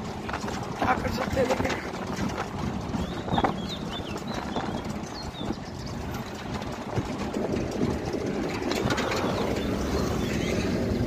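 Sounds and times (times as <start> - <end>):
vehicle engine rumble: 0.0 - 11.0
high bird chirps: 3.0 - 6.0.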